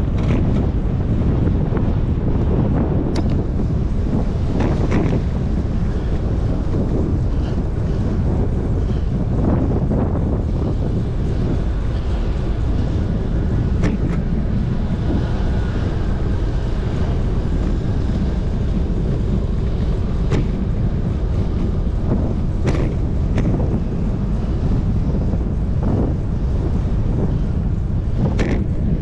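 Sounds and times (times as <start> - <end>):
road noise: 0.0 - 29.0
wind rush on microphone: 0.0 - 29.0
sharp clicks or knocks: 28.4 - 28.6.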